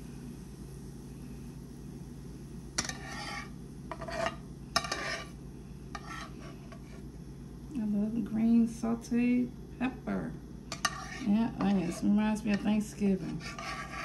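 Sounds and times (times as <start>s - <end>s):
steady low hum: 0.0s - 14.0s
spoon scraping a skillet: 2.8s - 7.1s, 10.7s - 14.0s.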